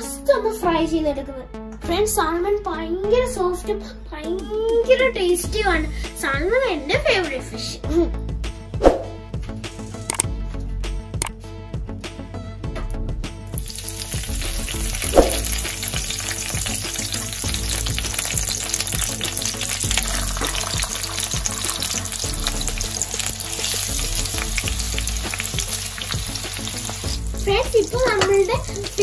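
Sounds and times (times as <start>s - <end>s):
fish sizzling in frying pan: 13.6s - 29.0s.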